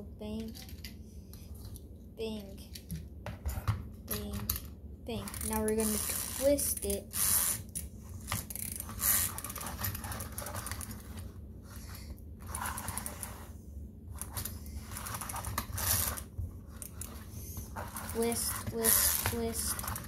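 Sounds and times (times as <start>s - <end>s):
plastic toy clicking and scraping: 3.4s - 11.3s, 12.4s - 13.5s, 14.2s - 20.0s.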